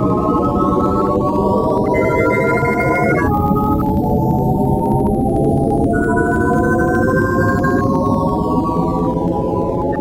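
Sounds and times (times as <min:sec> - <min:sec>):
synthesizer held high tones: 0:00.2 - 0:03.4.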